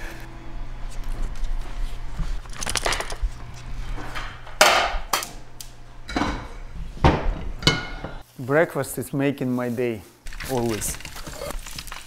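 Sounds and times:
low steady hum: 0.0 - 8.2
kitchen knocks and clatters: 4.1 - 5.3, 6.1 - 8.2.

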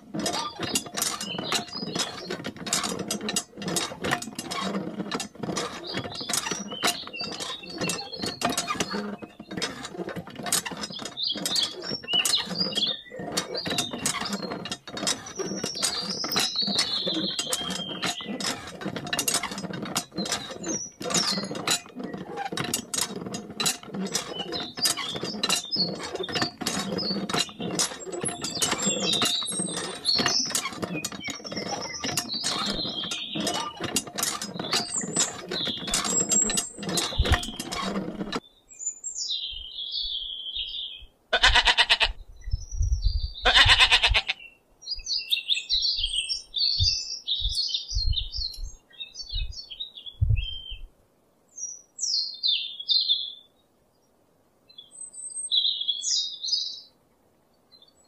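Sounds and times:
birds chirping: 0.0 - 4.6, 10.7 - 50.9
hand pump clicking and rattling: 0.0 - 38.4, 41.4 - 42.1, 43.5 - 44.3
sheep bleating: 41.3 - 42.1, 43.4 - 44.4.

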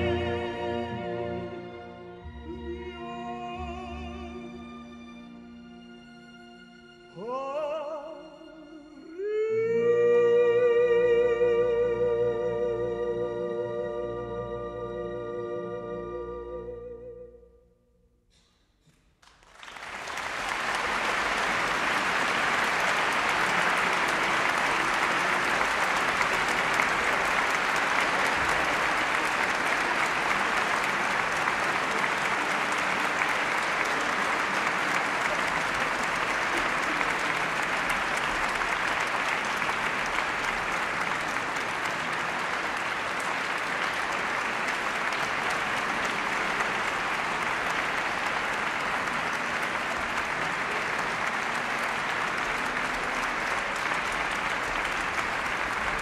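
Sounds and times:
audience applauding: 19.2 - 56.0.

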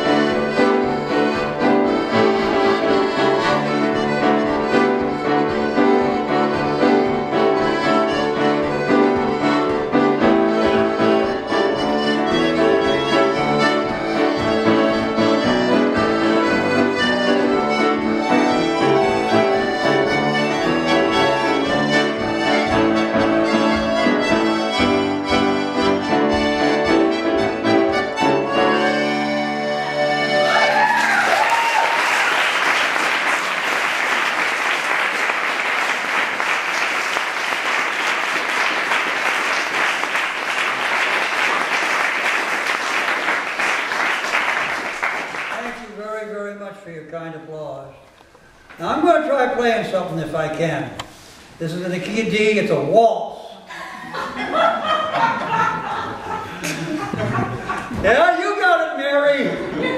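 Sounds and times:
accordion and piano playing: 0.0 - 31.0
person whooping: 30.4 - 32.1
audience applauding: 30.4 - 46.0.

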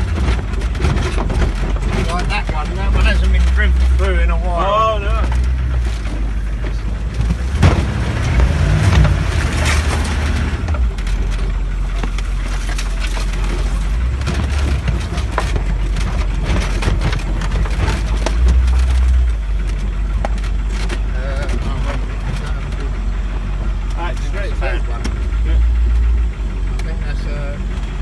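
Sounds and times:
cab rattling and knocking: 0.0 - 28.0
diesel engine rumbling under load: 0.0 - 28.0.

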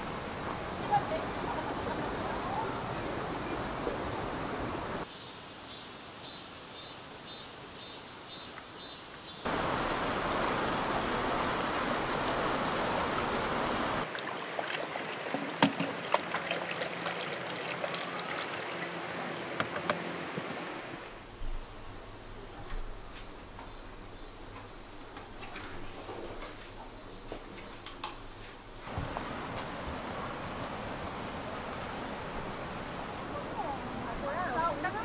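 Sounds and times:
mountain stream rushing: 0.0 - 5.1, 9.4 - 21.4, 28.8 - 35.0.

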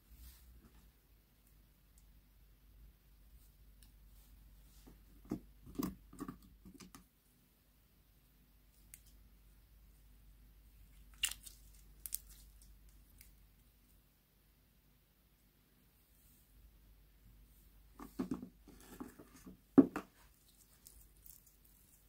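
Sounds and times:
slime squishing: 10.8 - 13.3, 20.3 - 22.0.

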